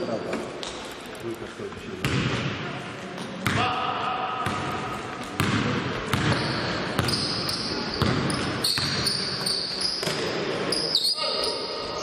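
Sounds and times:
voices echoing in hall: 0:00.0 - 0:12.0
basketball bouncing on hardwood floor: 0:02.0 - 0:02.4, 0:05.4 - 0:07.3, 0:07.9 - 0:09.1
sneaker squeaks: 0:06.1 - 0:12.0.

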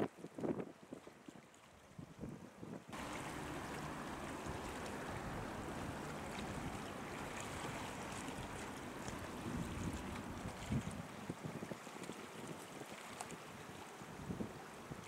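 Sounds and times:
wind: 0:00.0 - 0:15.0
sea waves rushing: 0:02.9 - 0:15.0
wind thumps on microphone: 0:09.4 - 0:11.8.

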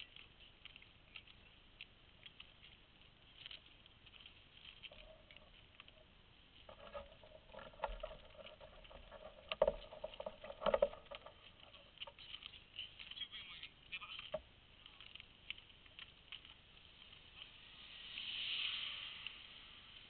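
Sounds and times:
bicycle clicking and rattling: 0:02.2 - 0:13.2.

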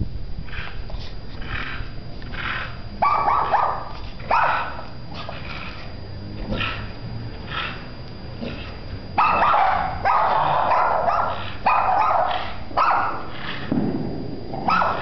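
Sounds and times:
dog barking: 0:03.0 - 0:05.3, 0:09.2 - 0:13.7, 0:14.6 - 0:15.0.

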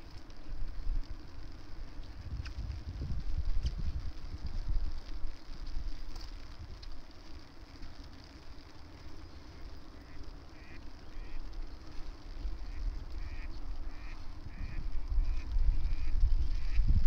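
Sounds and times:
wind rumble on microphone: 0:00.0 - 0:10.4, 0:11.0 - 0:17.0
short repeated animal calls: 0:12.6 - 0:16.8.

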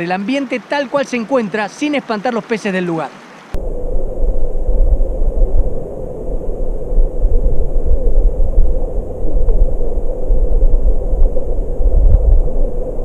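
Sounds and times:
muffled underwater stream rumble: 0:03.6 - 0:13.0.

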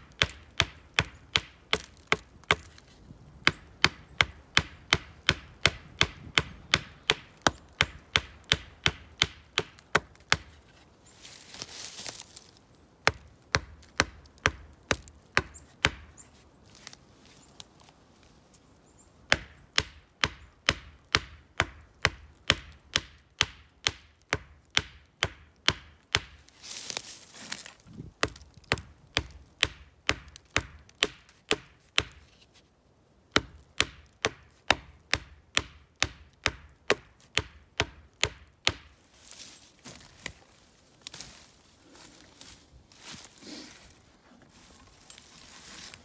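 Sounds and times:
stone axe chopping wood: 0:00.1 - 0:02.8, 0:03.4 - 0:10.6, 0:13.0 - 0:16.2, 0:19.3 - 0:26.4, 0:28.0 - 0:32.2, 0:33.3 - 0:38.9.

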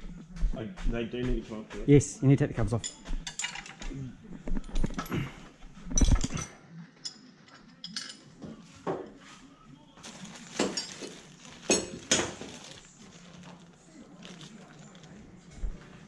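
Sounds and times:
plastic bags crinkling: 0:10.0 - 0:15.8.

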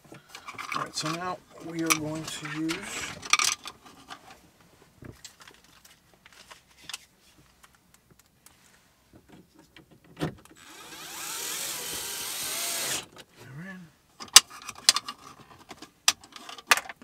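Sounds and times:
electric screwdriver whirring: 0:10.6 - 0:13.1.

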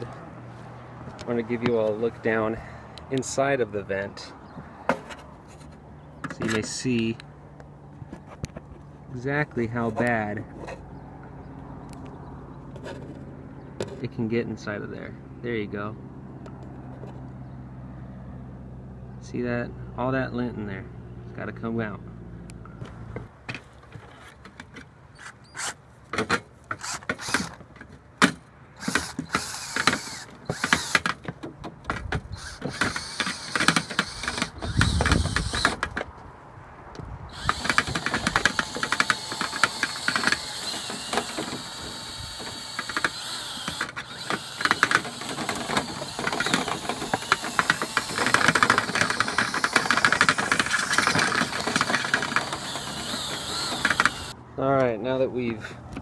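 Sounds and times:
continuous rattling: 0:26.1 - 0:36.1, 0:37.3 - 0:54.4.

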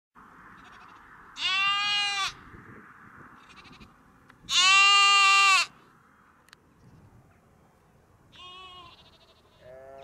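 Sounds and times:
lamb bleating: 0:00.6 - 0:02.4, 0:03.4 - 0:03.9, 0:04.5 - 0:05.8, 0:08.3 - 0:10.0.

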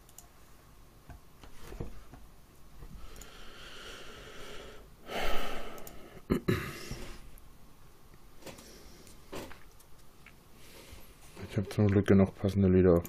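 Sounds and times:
man exhaling heavily: 0:03.4 - 0:07.2.

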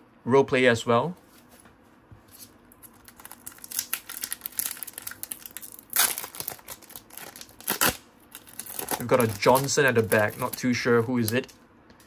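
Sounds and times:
foil wrapper crinkling and tearing: 0:02.8 - 0:11.6.

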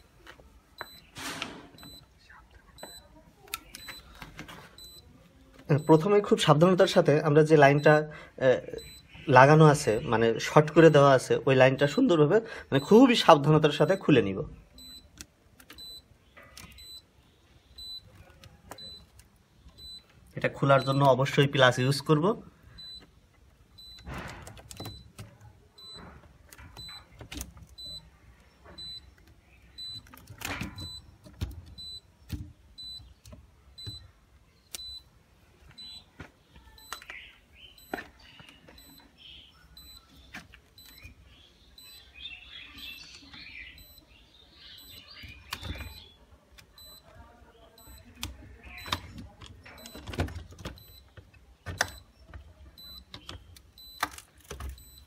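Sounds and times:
pliers clicking on circuit breakers: 0:23.0 - 0:28.0
faint high beep: 0:35.8 - 0:37.1.

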